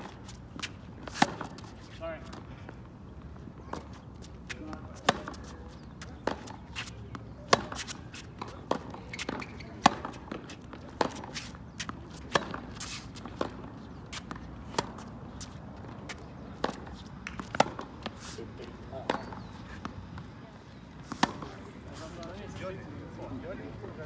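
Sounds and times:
racket hitting tennis ball: 0:00.0 - 0:01.7, 0:03.7 - 0:18.4, 0:21.0 - 0:21.6
tennis ball bouncing: 0:00.0 - 0:01.7, 0:03.6 - 0:18.2, 0:18.9 - 0:20.3, 0:21.0 - 0:21.6.

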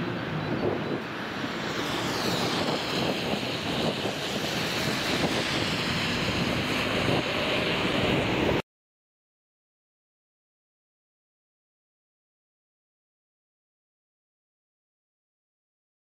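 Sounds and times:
road traffic noise: 0:00.0 - 0:08.6.

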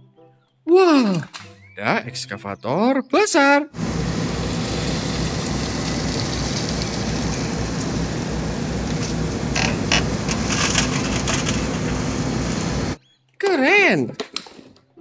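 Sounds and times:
excavator diesel engine running: 0:03.8 - 0:13.0.

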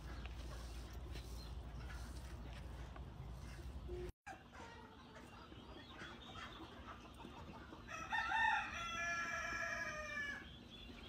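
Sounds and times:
rooster crowing: 0:07.9 - 0:10.4.

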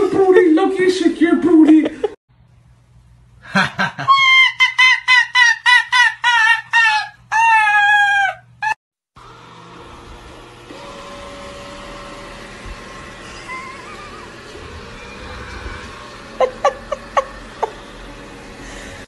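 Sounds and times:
fox screaming: 0:06.1 - 0:08.8
robot vacuum humming: 0:09.2 - 0:19.0.

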